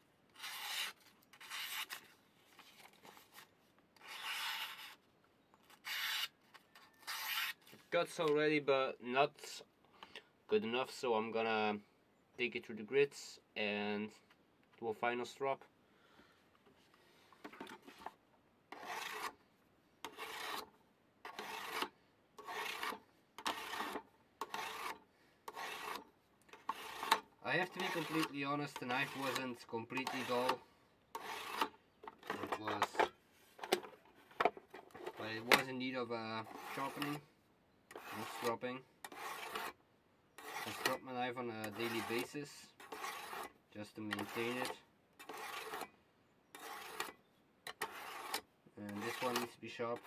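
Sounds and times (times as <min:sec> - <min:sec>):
knife rasping on sharpening stone: 0:00.4 - 0:02.0, 0:04.0 - 0:05.0, 0:05.8 - 0:06.3, 0:07.0 - 0:07.6, 0:18.7 - 0:19.4, 0:20.0 - 0:26.0, 0:26.6 - 0:30.6, 0:31.2 - 0:31.7, 0:36.4 - 0:37.2, 0:37.9 - 0:39.8, 0:40.4 - 0:41.0, 0:41.6 - 0:43.5, 0:44.1 - 0:45.9, 0:46.5 - 0:50.0
knife slicing paper: 0:00.4 - 0:02.1, 0:26.7 - 0:30.6.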